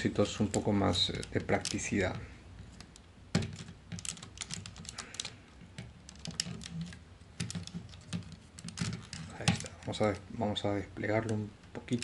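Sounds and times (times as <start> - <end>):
plastic toy parts clicking: 0.4 - 2.0, 2.8 - 9.9.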